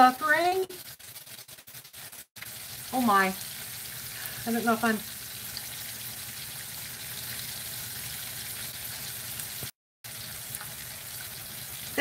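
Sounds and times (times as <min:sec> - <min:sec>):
steaks sizzling in a skillet: 0:00.0 - 0:12.0.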